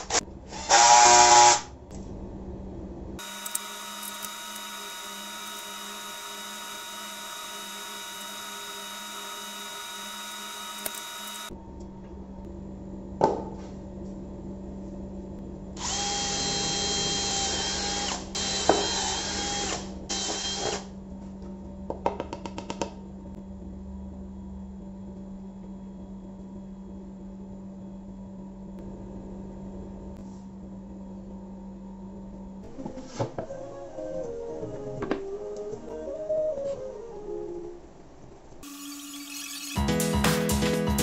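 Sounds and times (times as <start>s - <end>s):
steady hum: 1.8s - 17.2s
cordless drill whine: 3.2s - 11.5s, 15.8s - 20.9s.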